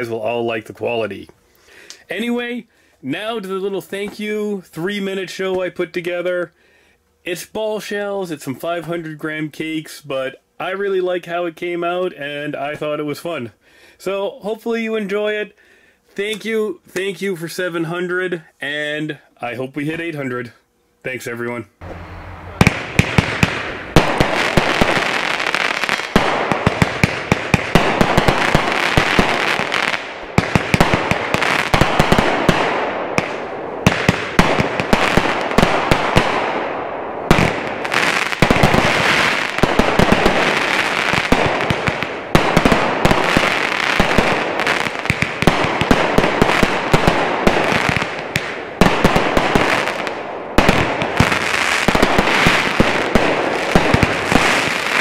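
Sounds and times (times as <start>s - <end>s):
fireworks bursting reports: 21.8s - 55.0s
firework launch thumps: 22.6s - 24.4s
firework hiss and crackle: 22.6s - 36.6s, 37.3s - 55.0s.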